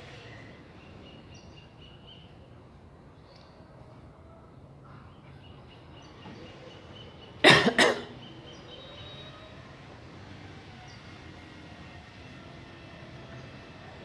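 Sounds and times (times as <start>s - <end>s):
person coughing: 7.4s - 8.1s.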